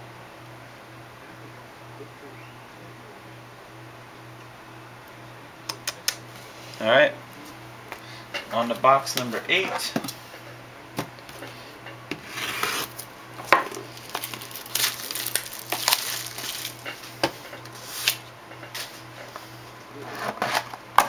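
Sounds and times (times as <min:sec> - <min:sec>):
cardboard box rubbing and scraping: 0:12.1 - 0:13.0.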